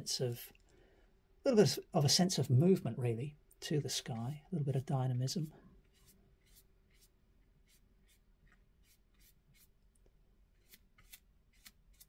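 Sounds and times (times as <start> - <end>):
brush strokes on paper: 5.3 - 9.8, 10.6 - 12.0.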